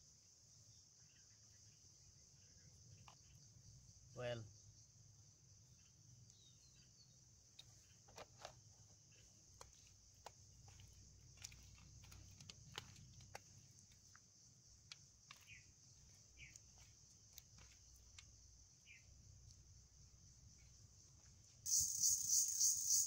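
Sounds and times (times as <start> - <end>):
faint high insect drone: 0.0 - 23.0
short chirps: 21.7 - 23.0.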